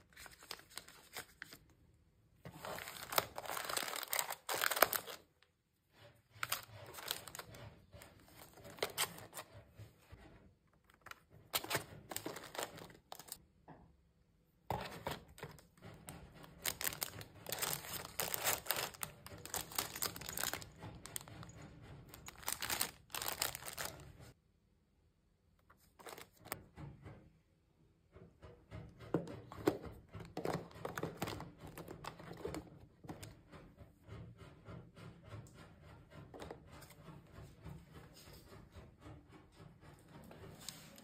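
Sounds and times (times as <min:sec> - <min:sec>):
cellophane wrappers crinkling: 0:02.5 - 0:05.4, 0:11.5 - 0:13.4, 0:16.6 - 0:21.4, 0:22.2 - 0:24.0.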